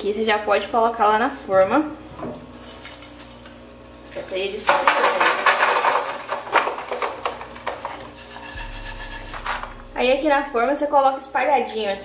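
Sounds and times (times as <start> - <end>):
peanuts rattling on metal tray: 4.2 - 8.5
spatula scraping: 8.2 - 9.6.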